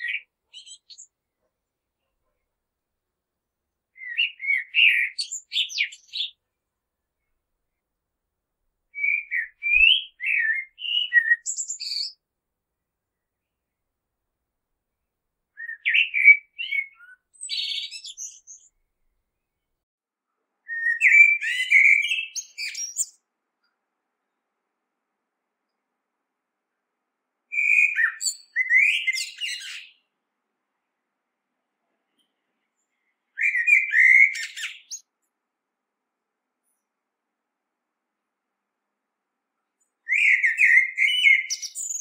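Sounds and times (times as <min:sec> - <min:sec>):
blackbird singing: 0:00.0 - 0:01.1, 0:04.0 - 0:06.4, 0:08.9 - 0:12.2, 0:15.6 - 0:18.8, 0:20.7 - 0:23.2, 0:27.5 - 0:30.0, 0:33.3 - 0:35.0, 0:40.1 - 0:42.0.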